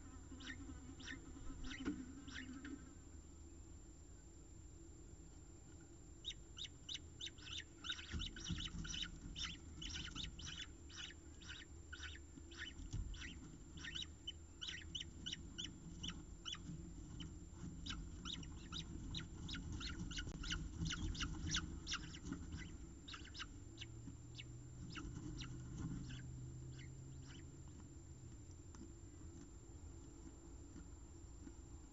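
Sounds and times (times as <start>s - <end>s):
falcon chick chirping: 0.3s - 2.8s, 6.2s - 27.8s.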